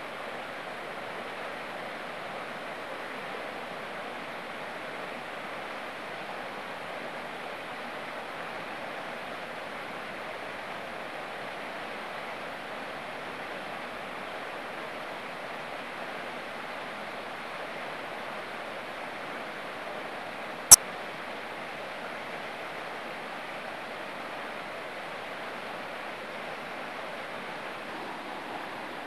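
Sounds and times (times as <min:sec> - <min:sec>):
flowing water rushing: 0:24.4 - 0:29.0.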